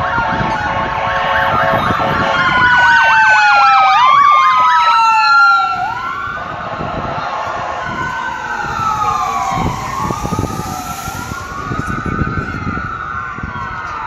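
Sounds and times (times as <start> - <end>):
ambulance siren wailing: 0.0 - 14.0.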